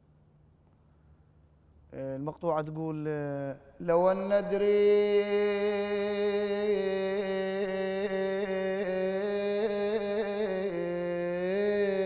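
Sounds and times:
man chanting a lament: 2.0 - 12.0.

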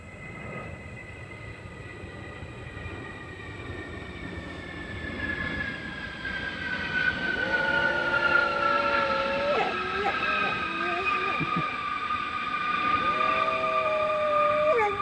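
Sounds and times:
airplane rumble passing overhead: 0.0 - 15.0
high whining tones: 6.4 - 15.0
dog howling: 7.2 - 15.0.

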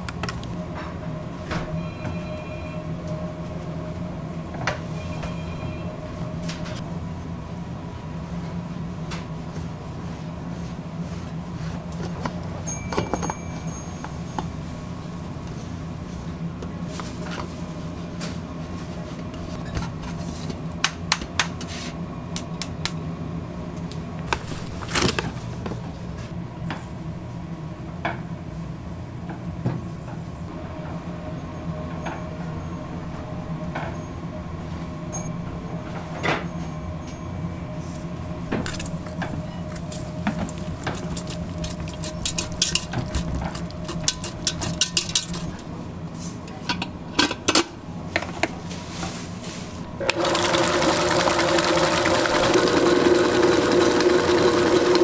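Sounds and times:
kitchen machinery hum: 0.0 - 55.0
whisk beating eggs in steel bowl: 40.8 - 45.6, 50.4 - 55.0.

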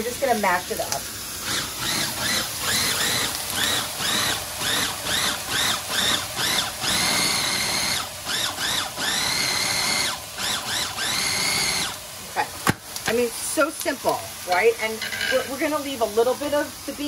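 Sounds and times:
food processor motor whining: 1.4 - 12.1.

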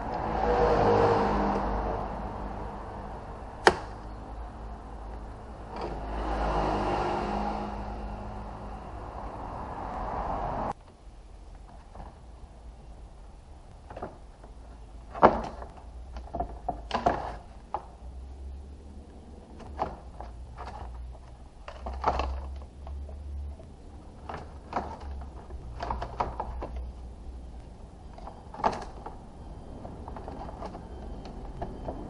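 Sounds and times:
plastic and metal parts knocking: 13.8 - 18.1, 19.5 - 27.1, 28.0 - 29.2.

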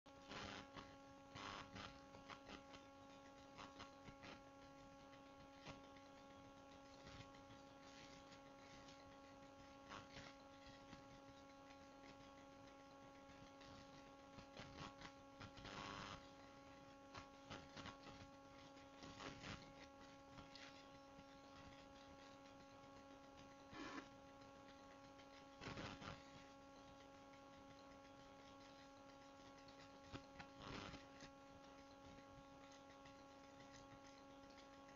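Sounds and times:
faint electrical hum: 0.1 - 34.9.

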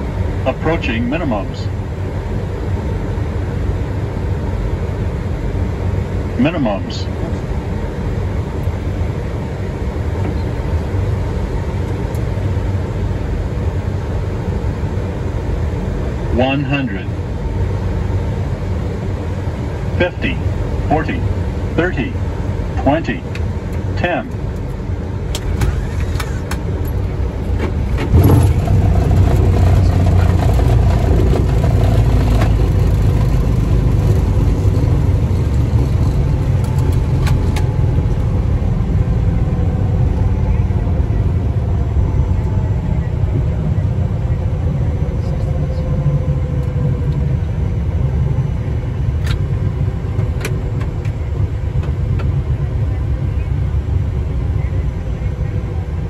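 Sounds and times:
low rumble of airflow and engines: 0.0 - 56.0.

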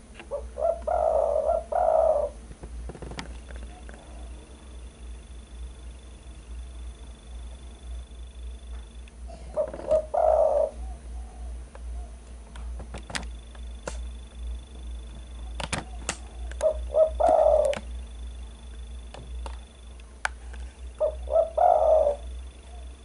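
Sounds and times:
dove cooing: 0.3 - 2.5, 3.4 - 4.7, 9.3 - 12.4, 14.8 - 18.4, 20.8 - 23.0.

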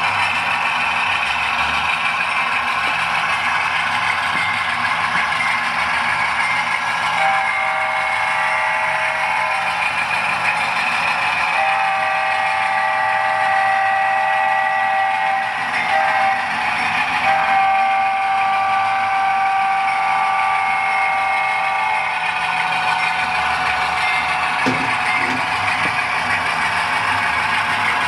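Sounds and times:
diesel engine sound: 0.0 - 28.0
model locomotive horn blasts: 7.2 - 9.7, 11.5 - 16.5, 17.2 - 22.3.

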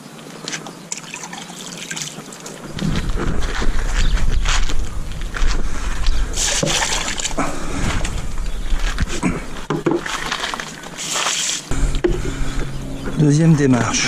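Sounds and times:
steady low rumble: 2.7 - 10.2, 11.7 - 14.0
water splashing onto ground: 6.4 - 7.4, 10.0 - 11.7.

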